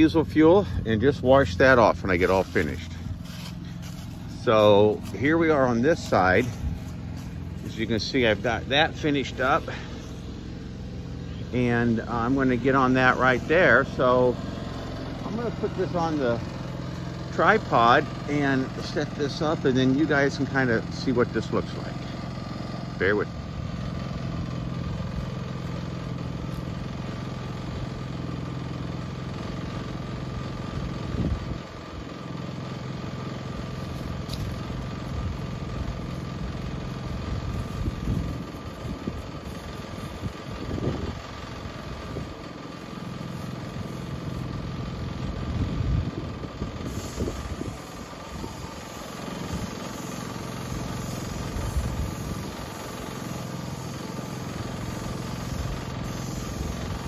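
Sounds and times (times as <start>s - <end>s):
small engine running: 0.0s - 57.0s.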